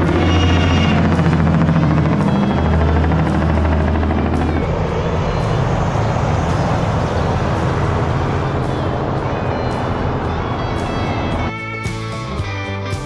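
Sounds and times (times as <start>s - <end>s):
engine and tyre rush: 0.0s - 12.4s
diesel engine drone: 0.0s - 13.0s.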